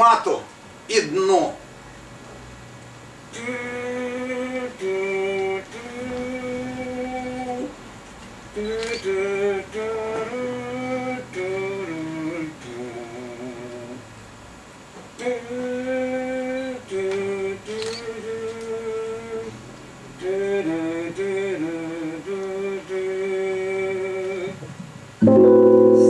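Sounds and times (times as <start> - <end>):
harmonica melody: 25.2 - 26.0.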